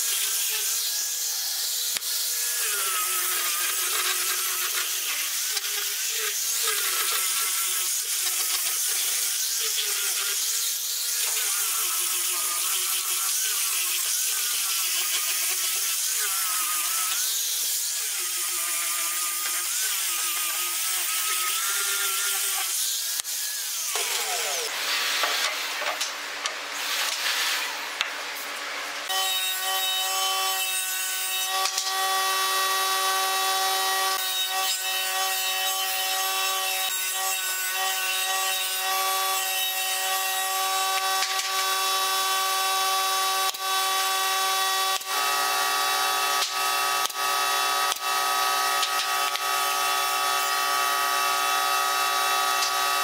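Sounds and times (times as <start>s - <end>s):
angle grinder sanding wood: 0.0s - 25.9s.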